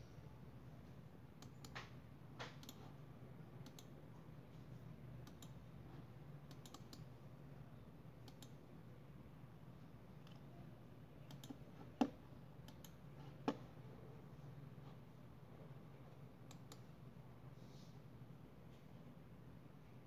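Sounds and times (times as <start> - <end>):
faint low hum: 0.0 - 20.0
computer mouse buttons clicking: 1.4 - 2.9, 3.6 - 3.9, 5.2 - 5.6, 6.5 - 7.1, 8.2 - 8.6, 11.2 - 13.6, 16.5 - 16.9.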